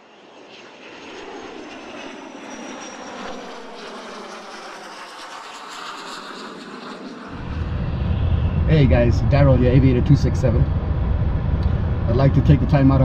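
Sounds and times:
aircraft engine noise: 0.0 - 13.0
faint high whine: 7.3 - 13.0.

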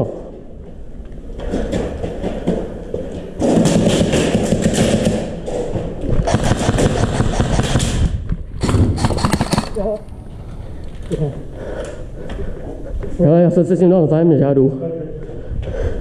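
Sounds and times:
airsoft guns firing bursts: 3.4 - 5.4, 6.2 - 10.0.

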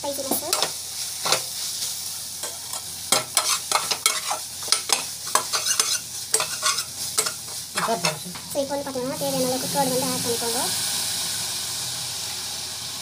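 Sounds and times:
steady sizzle: 0.0 - 13.0
metal spatula scraping pot: 2.7 - 8.4.

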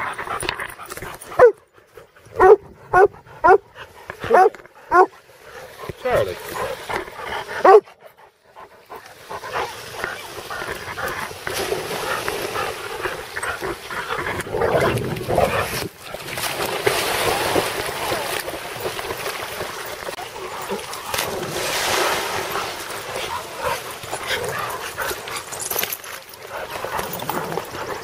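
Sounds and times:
dogs barking: 1.4 - 1.6, 2.4 - 5.2, 7.6 - 8.0
dogs splashing in water: 2.4 - 7.9, 8.8 - 28.0.

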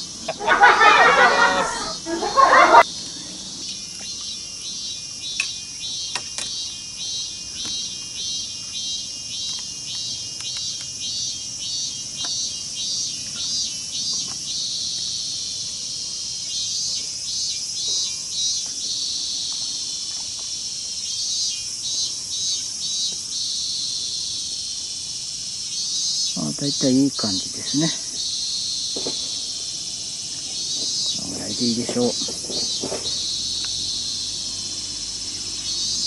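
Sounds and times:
insects shrilling: 0.0 - 36.0
pulsing insect call: 0.0 - 36.0.

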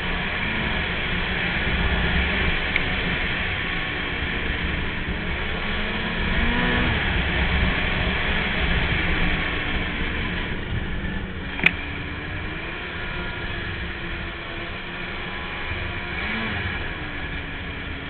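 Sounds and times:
snowmobile engine running: 0.0 - 18.0
sharp click: 11.6 - 11.8.

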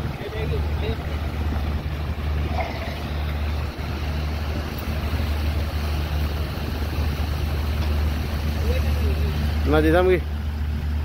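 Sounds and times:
fountain jets splashing: 0.0 - 10.7.

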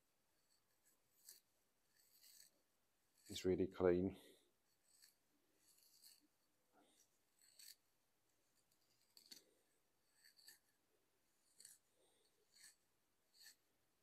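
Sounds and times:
steel wool scraping copper pipe: 0.5 - 3.5, 4.7 - 6.3, 7.4 - 7.8.

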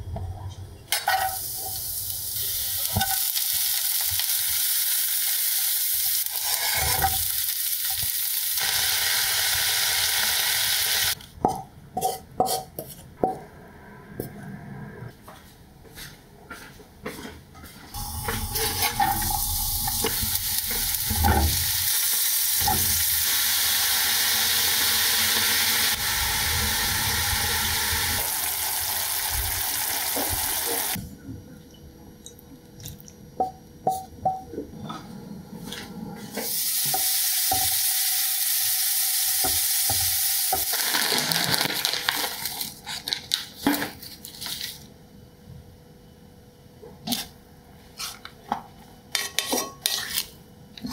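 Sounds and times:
food sizzling in a frying pan: 1.2 - 11.2, 18.0 - 31.0, 36.4 - 42.6.

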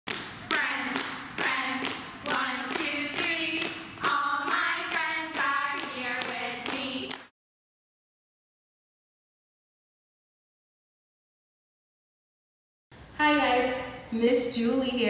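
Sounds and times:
hand-clap beat: 0.1 - 7.3
group of voices singing: 0.5 - 7.3.

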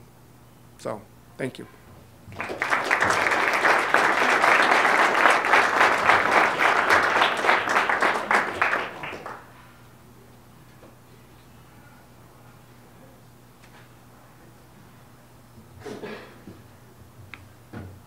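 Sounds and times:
audience applauding: 2.3 - 9.6.

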